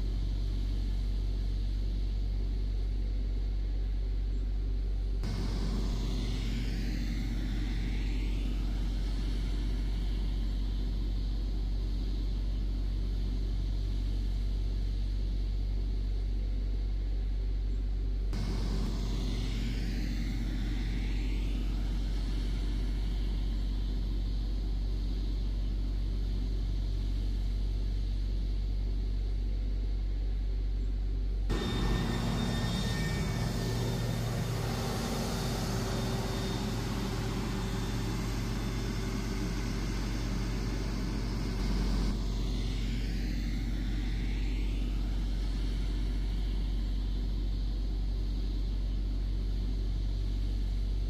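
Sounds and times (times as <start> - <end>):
construction machinery rumble: 18.4 - 23.8, 31.5 - 46.4
diesel engine running: 18.4 - 24.3, 31.5 - 47.2.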